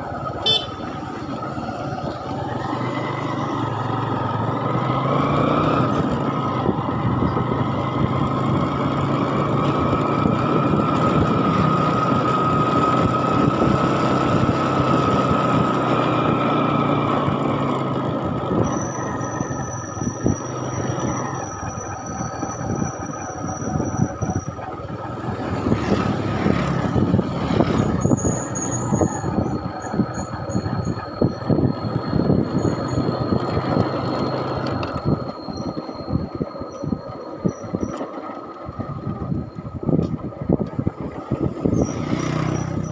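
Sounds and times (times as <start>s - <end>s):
engine whine: 0.0s - 42.9s
vehicle engine and road noise: 0.0s - 42.9s
high pulsing chirp: 27.7s - 38.1s.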